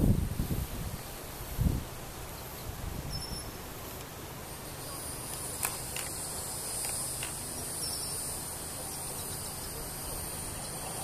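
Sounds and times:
high-pitched insect drone: 4.4 - 11.0.

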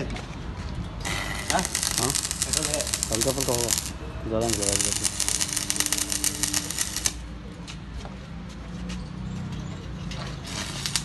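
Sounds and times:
arc welding crackling: 1.0 - 7.3, 10.4 - 11.0.

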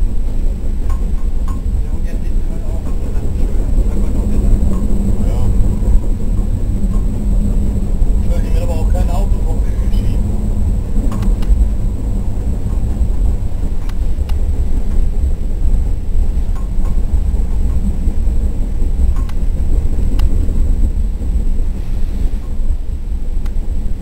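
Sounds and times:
train rumbling along track: 0.0 - 24.0.

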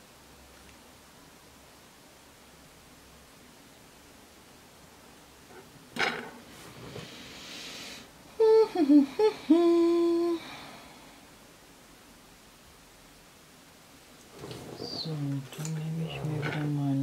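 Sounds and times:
woman humming: 8.3 - 10.8.

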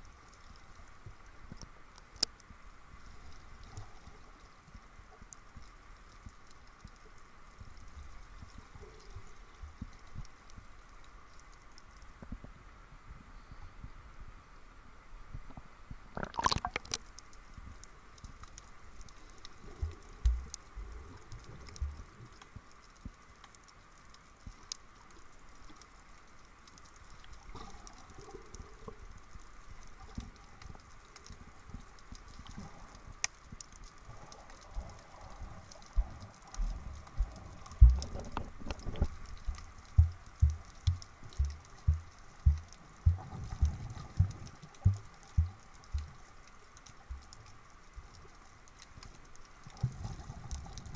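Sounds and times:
faint underwater clicks: 0.0 - 14.0, 15.2 - 50.9
low thumps of swimming strokes: 34.7 - 46.3
low underwater knocks: 37.2 - 46.2.

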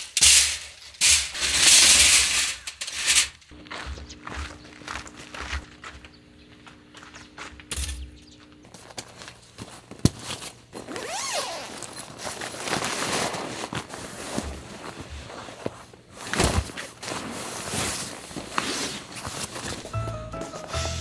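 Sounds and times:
nylon fabric rustling: 8.8 - 19.9.

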